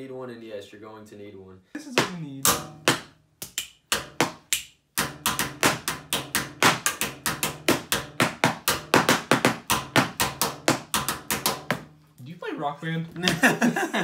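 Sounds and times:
rubber antenna slapping: 1.9s - 12.0s.

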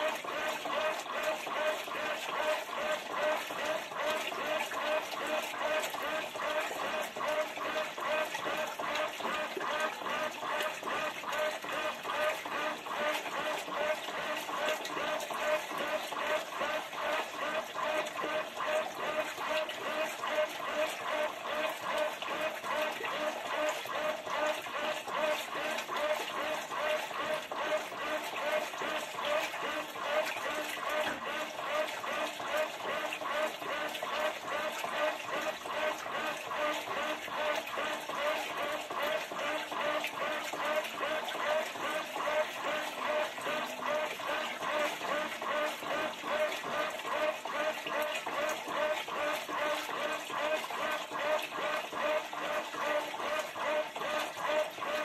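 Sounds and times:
washing machine churning water: 0.0s - 55.0s.

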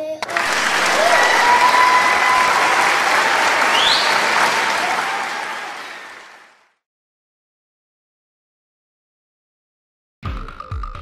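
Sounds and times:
audience applause: 0.2s - 6.8s
rising whistle: 0.3s - 6.5s.

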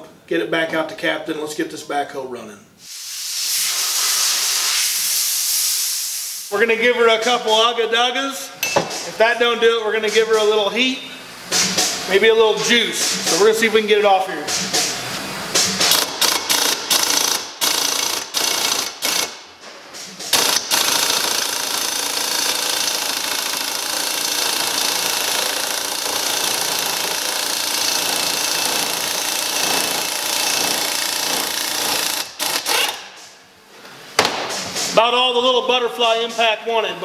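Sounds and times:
pneumatic impact wrench hammering: 11.5s - 12.1s, 14.5s - 33.4s.

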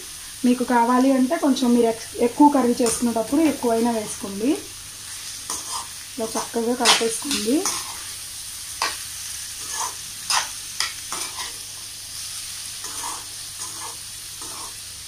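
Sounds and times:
vegetables sizzling in oil: 0.0s - 15.0s
metal spatula scraping pan: 5.5s - 5.9s, 6.8s - 8.0s, 9.6s - 11.6s, 12.8s - 14.8s.

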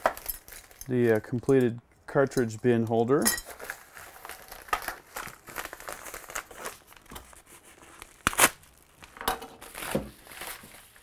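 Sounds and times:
paper bag crinkling: 3.5s - 11.0s.

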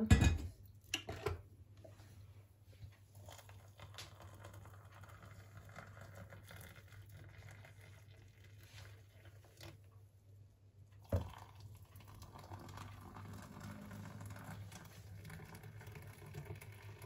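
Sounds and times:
hot water pouring into mug: 3.1s - 10.2s, 10.8s - 17.0s.

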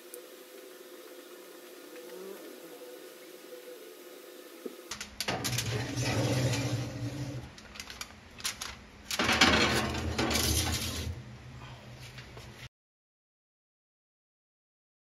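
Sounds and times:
low steady hum: 0.0s - 12.7s
aluminium foil crinkling: 4.9s - 11.2s.

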